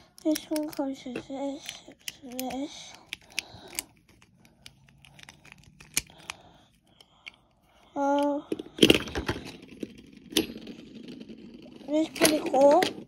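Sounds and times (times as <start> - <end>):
plastic parts clicking together: 0.0 - 7.4
spinning top clattering on wood floor: 8.5 - 13.0.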